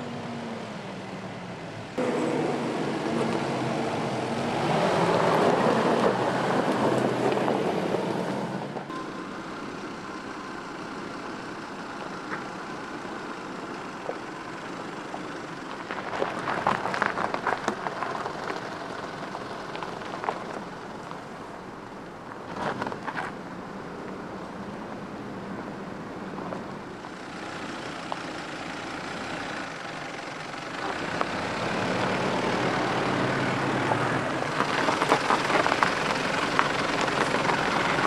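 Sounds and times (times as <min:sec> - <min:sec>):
car engine running: 0:00.8 - 0:38.0
tyres crunching over gravel: 0:10.8 - 0:23.4, 0:30.6 - 0:38.0.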